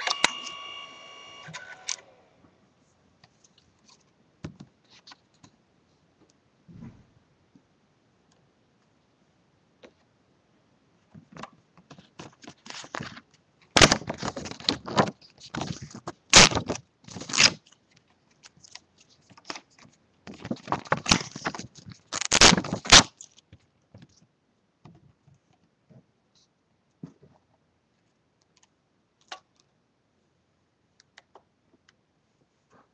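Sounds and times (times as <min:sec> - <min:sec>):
card rustling and scraping: 0:11.9 - 0:23.5.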